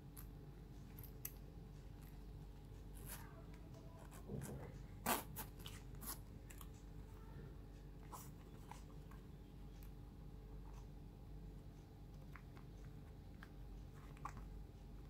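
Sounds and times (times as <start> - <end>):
metal zip being pulled open: 5.0 - 6.2.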